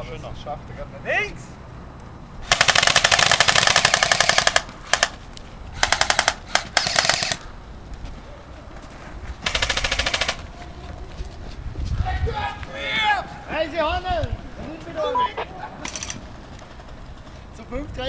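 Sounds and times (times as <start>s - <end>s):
airsoft rifle firing bursts: 2.4s - 5.2s, 5.8s - 7.4s, 9.4s - 10.4s.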